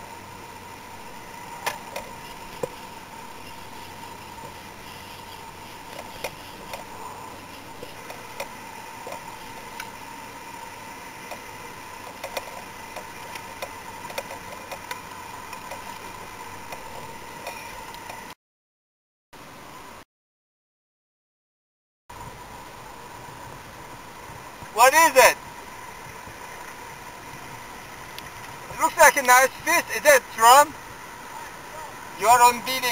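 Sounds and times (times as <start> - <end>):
faint steady tone: 0.0 - 18.4
steady hiss: 0.0 - 18.4, 22.1 - 32.9.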